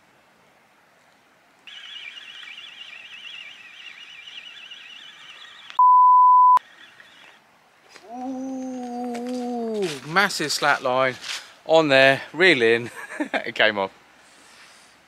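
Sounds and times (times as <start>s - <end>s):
fishing reel whirring: 1.7s - 5.8s, 6.6s - 7.4s
censor bleep: 1.7s - 6.6s.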